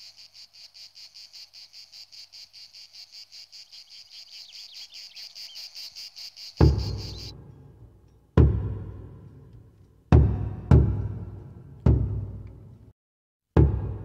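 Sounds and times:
insects chirping: 0:00.0 - 0:07.4
deep drum hit: 0:06.6 - 0:07.5, 0:08.4 - 0:09.3, 0:10.1 - 0:12.4, 0:13.6 - 0:14.0.

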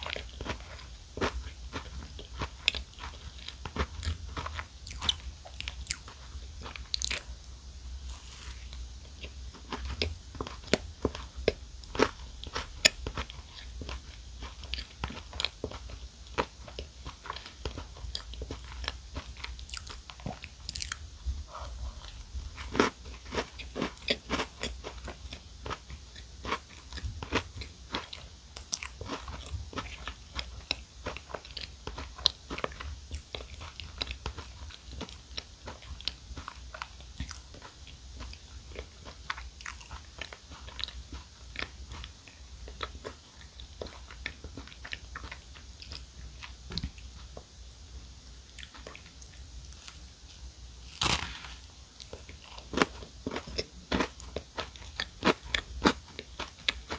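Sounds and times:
crunchy chocolate cupcake chewing: 0:00.0 - 0:07.3, 0:08.0 - 0:21.0, 0:21.6 - 0:47.4, 0:50.8 - 0:56.9.

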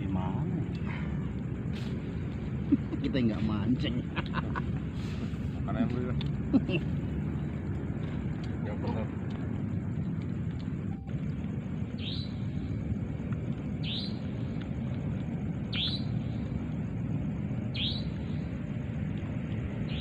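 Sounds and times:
steady low rumble: 0:00.0 - 0:20.0
bird calling: 0:12.0 - 0:12.4, 0:13.8 - 0:14.3, 0:15.7 - 0:16.2, 0:17.7 - 0:18.3.

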